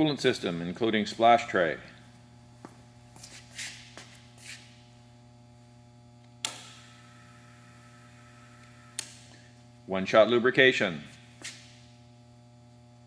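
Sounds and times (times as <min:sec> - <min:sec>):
low electrical hum: 0:00.0 - 0:13.0
footsteps on concrete: 0:02.1 - 0:04.8, 0:11.1 - 0:11.8
switch click: 0:06.2 - 0:06.8.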